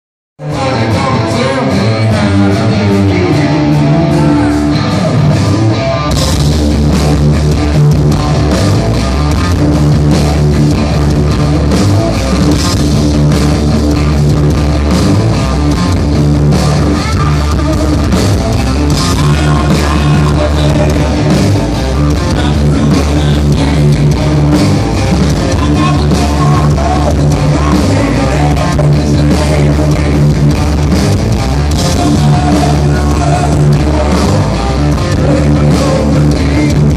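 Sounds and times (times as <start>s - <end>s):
electric guitar riff: 0.4s - 36.9s
hard rock band playing live: 0.4s - 36.9s.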